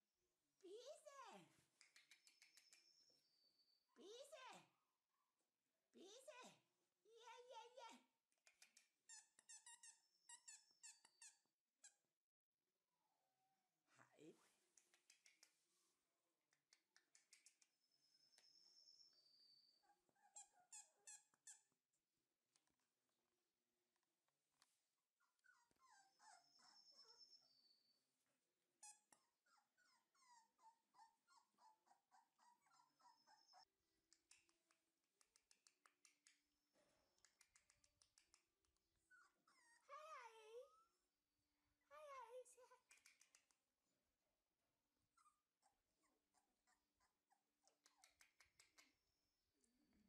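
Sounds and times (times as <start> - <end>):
puppy whining: 1.8 - 3.8, 8.9 - 12.0, 17.1 - 21.8, 25.2 - 28.1, 28.8 - 33.7, 39.0 - 41.0, 45.1 - 49.0
light clicks of puppies moving: 14.7 - 15.6, 16.5 - 17.8, 34.1 - 36.4, 37.2 - 38.8, 42.8 - 43.6, 47.6 - 49.0
puppies yelping: 25.5 - 27.5, 29.6 - 33.7.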